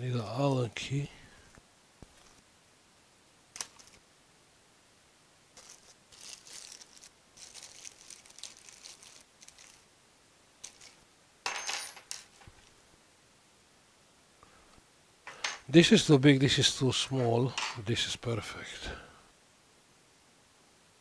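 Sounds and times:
metal keys clinking and rattling: 0:10.6 - 0:12.7.

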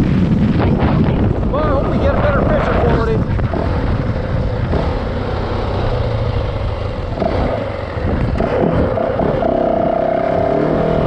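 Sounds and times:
dirt bike engine running: 0:00.0 - 0:11.0.

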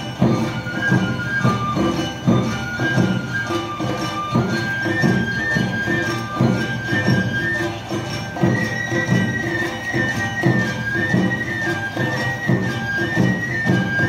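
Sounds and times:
bamboo flute melody: 0:00.0 - 0:14.0
metallic jingle: 0:00.0 - 0:14.0
steady drum beat: 0:00.0 - 0:14.0.

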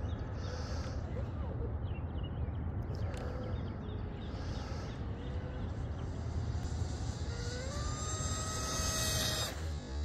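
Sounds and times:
distant electric motor whine: 0:04.4 - 0:10.0.

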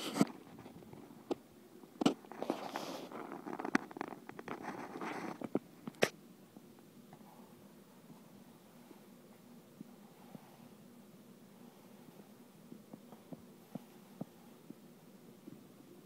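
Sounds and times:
handling rustling and scraping: 0:02.0 - 0:06.1.

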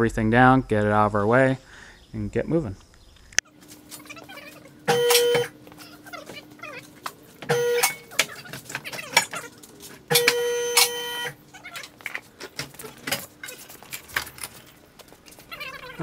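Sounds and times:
power tool whirring: 0:10.1 - 0:11.4.

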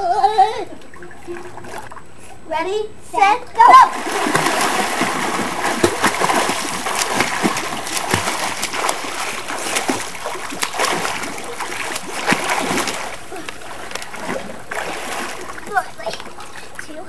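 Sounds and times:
swimmers splashing in pool: 0:03.6 - 0:16.9.

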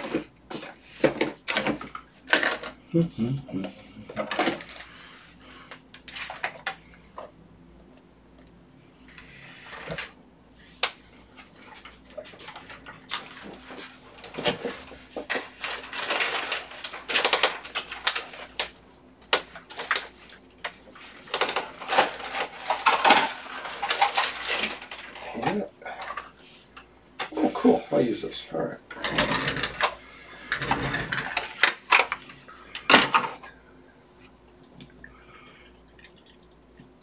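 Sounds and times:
small hard objects clattering: 0:12.4 - 0:26.3.

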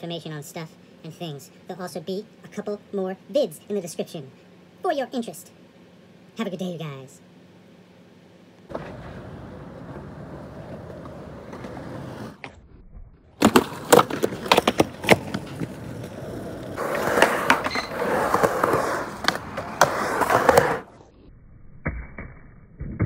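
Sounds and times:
skateboard clacks: 0:08.7 - 0:12.5, 0:13.4 - 0:20.9
skateboard wheels rolling on concrete: 0:08.7 - 0:12.6, 0:13.2 - 0:21.1.

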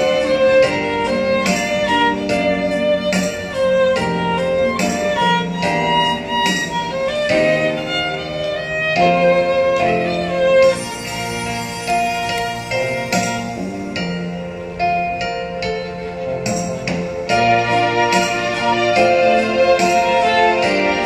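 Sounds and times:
violin slow melody: 0:00.0 - 0:21.0.

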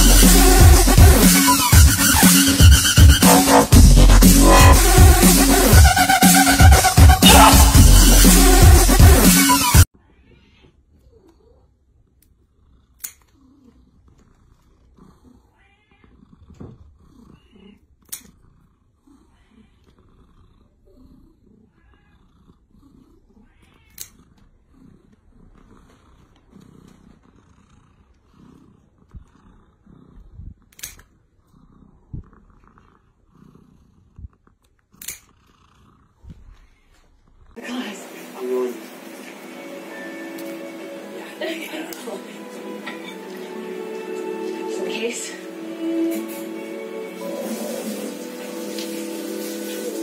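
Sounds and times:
cat purring: 0:10.9 - 0:37.7
nail scissors snipping claws: 0:13.0 - 0:13.3, 0:18.0 - 0:18.3, 0:23.9 - 0:24.2, 0:30.7 - 0:31.1, 0:35.0 - 0:35.3.

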